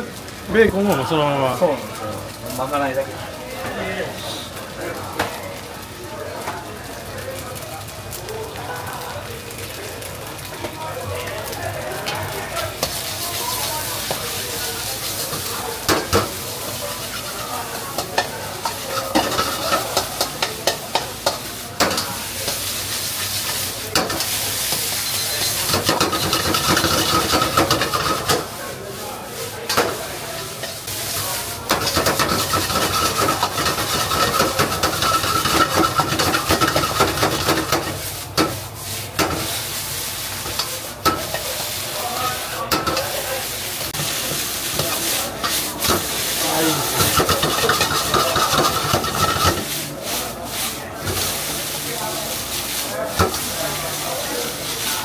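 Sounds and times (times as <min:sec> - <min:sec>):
rice sizzling in a wok: 0:00.0 - 0:55.0
spatula clanking against wok: 0:18.0 - 0:22.6, 0:31.7 - 0:38.6, 0:47.0 - 0:49.7.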